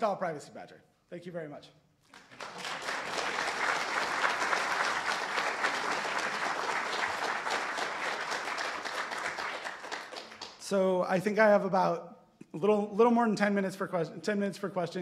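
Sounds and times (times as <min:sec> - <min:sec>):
audience applauding: 0:02.1 - 0:10.6.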